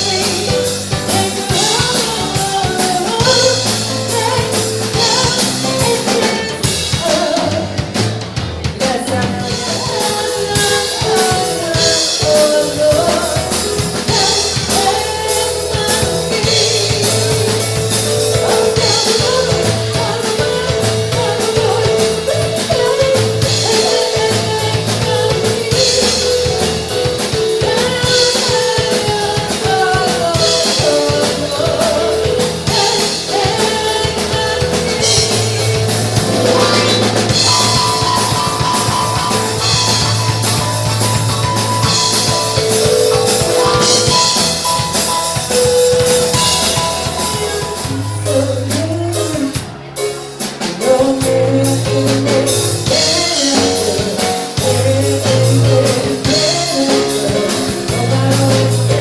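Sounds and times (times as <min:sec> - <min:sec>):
drum kit beat: 0:00.0 - 0:59.0
keyboard bass and chords: 0:00.0 - 0:59.0
woman singing: 0:00.0 - 0:59.0.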